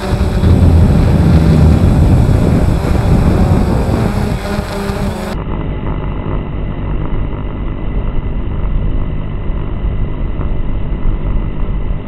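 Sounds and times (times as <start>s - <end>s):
drone propellers humming: 0.0s - 12.0s
faint high whine: 0.0s - 12.0s.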